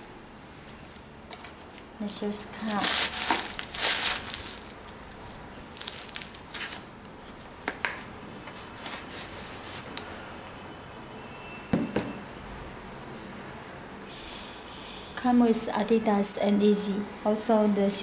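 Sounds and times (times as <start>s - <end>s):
paper rustling and crinkling: 0.8s - 1.9s, 2.5s - 5.0s, 5.7s - 7.5s.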